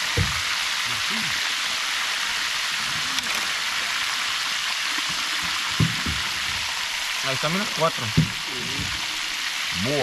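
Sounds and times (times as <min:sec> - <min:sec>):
fish sizzling in hot oil: 0:00.0 - 0:10.0
low knock: 0:05.8 - 0:06.6, 0:08.1 - 0:09.0.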